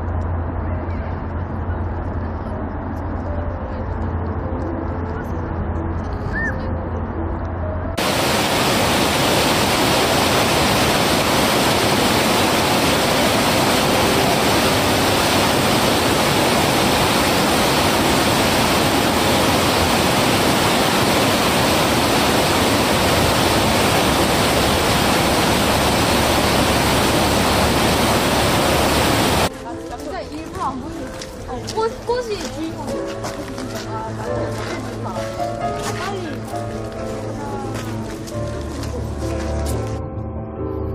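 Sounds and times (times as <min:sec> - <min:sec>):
stream rapids rushing: 0:08.0 - 0:29.5.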